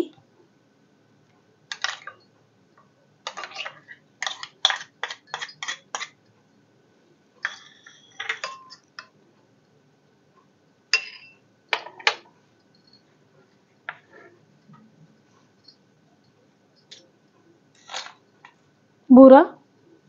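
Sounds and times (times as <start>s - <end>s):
glassy ring: 7.4s - 8.8s
metal spoon tapping glass bowl: 11.0s - 11.4s.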